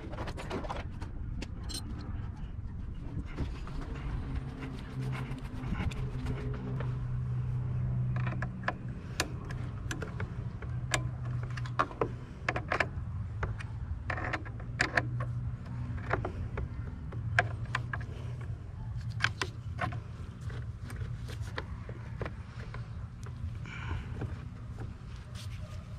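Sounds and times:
hand tools clicking and tapping: 0:07.9 - 0:25.2.

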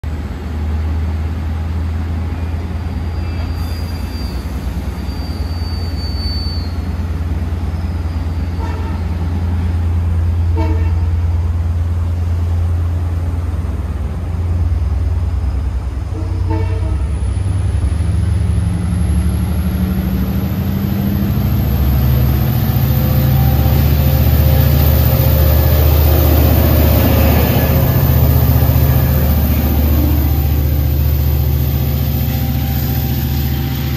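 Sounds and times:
diesel locomotive engine drone: 0:00.0 - 0:33.9
short train horn toots: 0:08.4 - 0:09.3, 0:10.5 - 0:11.3, 0:16.1 - 0:17.3, 0:27.1 - 0:33.9
high whine climbing in pitch: 0:17.2 - 0:33.9.

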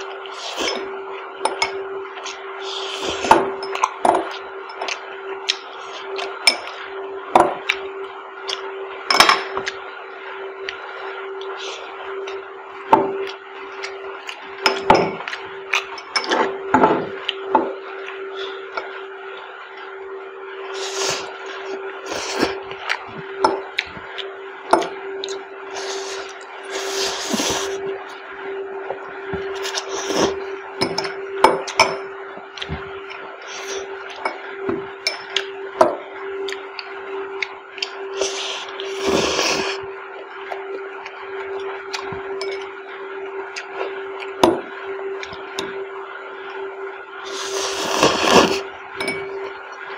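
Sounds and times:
low hum: 0:00.0 - 0:49.9
slurping noodles: 0:20.7 - 0:23.2, 0:25.7 - 0:27.8, 0:29.4 - 0:30.5, 0:38.1 - 0:39.9, 0:47.2 - 0:48.7
glass bowl and fork clinking: 0:30.8 - 0:32.0, 0:35.0 - 0:35.4, 0:42.4 - 0:42.7, 0:49.0 - 0:49.5.

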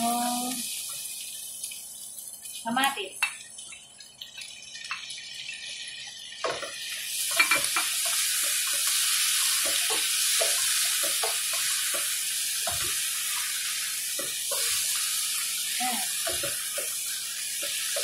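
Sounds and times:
food sizzling in frying pan: 0:00.0 - 0:18.0
spatula scraping and knocking pan: 0:06.5 - 0:13.4, 0:16.2 - 0:18.0.

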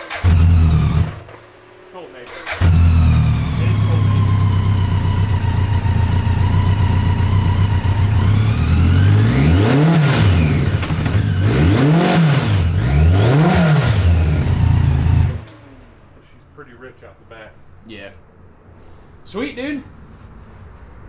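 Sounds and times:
motorcycle engine idling and revving: 0:00.0 - 0:16.2.

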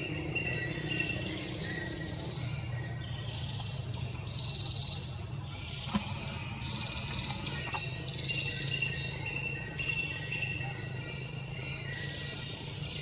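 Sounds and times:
low steady hum: 0:00.0 - 0:08.4
insects buzzing trills: 0:00.0 - 0:13.0.

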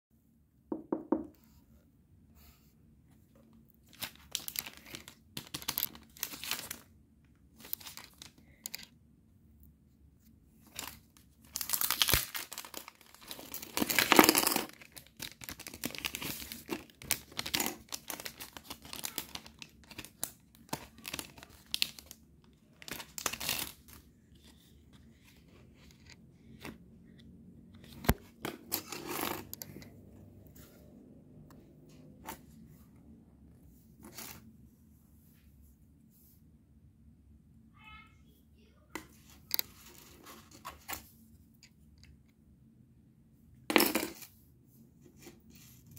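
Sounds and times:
plastic packets crinkling: 0:03.8 - 0:06.9, 0:07.6 - 0:08.9, 0:10.7 - 0:24.1
plastic tearing and peeling: 0:10.8 - 0:22.2.

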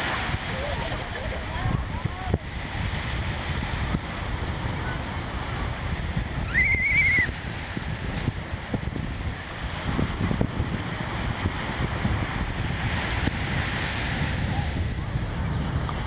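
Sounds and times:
surf on sandy beach: 0:00.0 - 0:16.0
wind buffeting microphone: 0:00.0 - 0:16.0.

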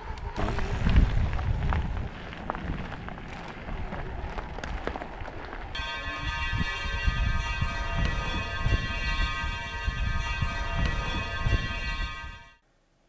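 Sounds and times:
wind rumbling on microphone: 0:00.0 - 0:12.4
bike tyres crunching on gravel: 0:00.2 - 0:10.3.

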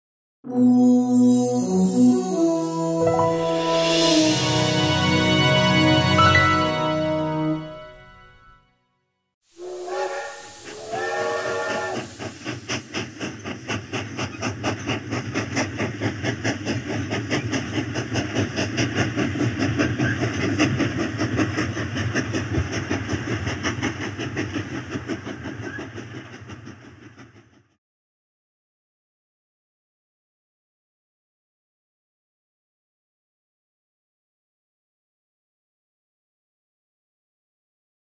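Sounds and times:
steam hissing: 0:09.5 - 0:26.4
steam whistle blasts: 0:09.6 - 0:12.3.

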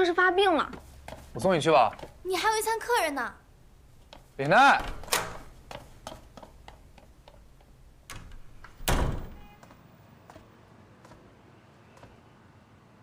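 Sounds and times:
quick footsteps on hard floor: 0:00.4 - 0:02.2, 0:05.4 - 0:07.8.

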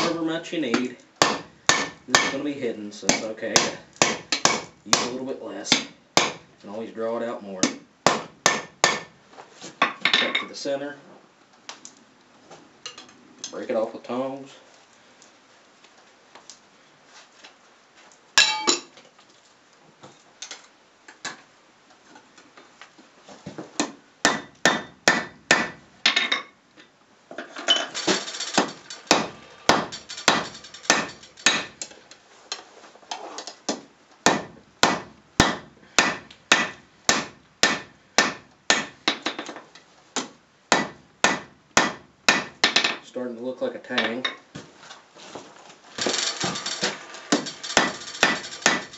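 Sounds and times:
hammer striking hot steel on anvil: 0:00.8 - 0:02.4, 0:03.1 - 0:06.4, 0:07.6 - 0:09.1, 0:24.2 - 0:25.8, 0:28.4 - 0:31.9, 0:34.3 - 0:39.0, 0:40.7 - 0:42.8, 0:46.6 - 0:48.9.

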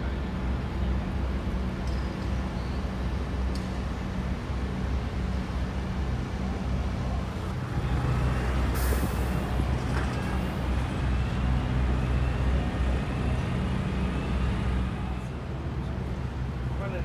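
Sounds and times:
low engine hum: 0:00.0 - 0:17.0
short hiss of air: 0:08.7 - 0:09.4.

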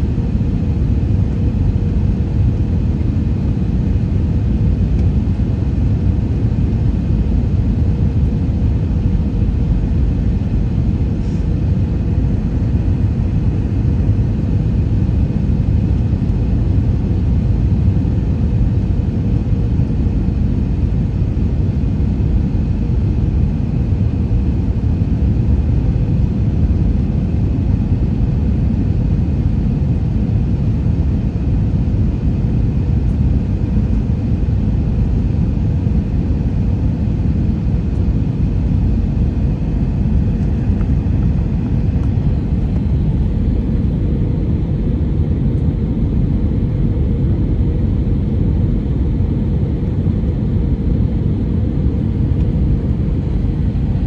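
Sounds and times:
aircraft cabin engine rumble: 0:00.0 - 0:54.0
faint steady hum: 0:00.0 - 0:54.0.

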